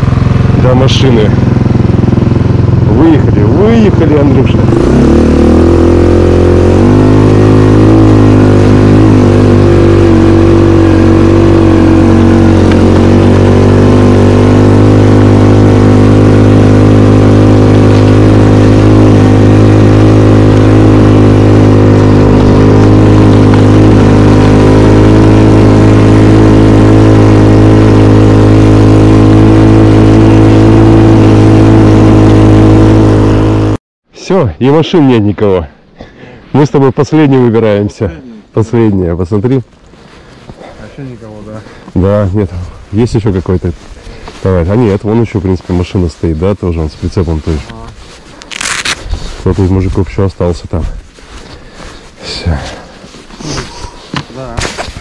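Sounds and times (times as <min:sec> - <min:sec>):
snowmobile engine running: 0:00.0 - 0:33.8, 0:40.2 - 0:55.0.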